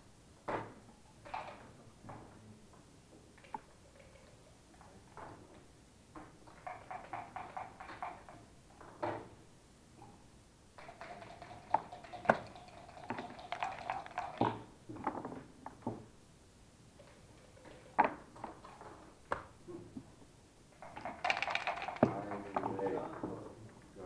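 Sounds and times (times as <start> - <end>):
dice rattling in a cup: 10.8 - 14.7, 20.8 - 22.8
game pieces knocking down: 20.8 - 23.0
dice clacking on a board: 20.9 - 22.8.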